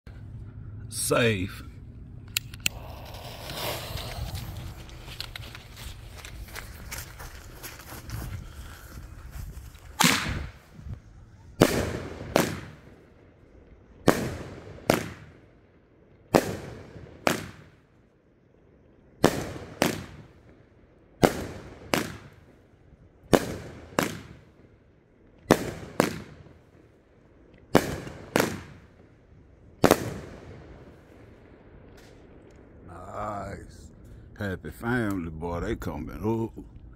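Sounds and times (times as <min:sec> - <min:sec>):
firework bursts: 0:02.6 - 0:06.9, 0:11.6 - 0:13.1, 0:16.4 - 0:17.8, 0:19.2 - 0:20.4, 0:21.2 - 0:22.5, 0:23.3 - 0:24.6, 0:25.5 - 0:26.8, 0:27.7 - 0:29.0, 0:29.8 - 0:31.4
firework launch thumps: 0:10.0 - 0:10.6.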